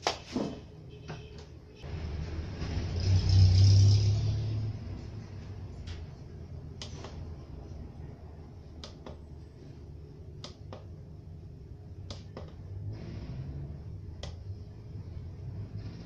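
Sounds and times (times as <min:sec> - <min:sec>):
steady low hum: 0:04.4 - 0:16.0
sharp clicks in pairs: 0:12.1 - 0:12.6.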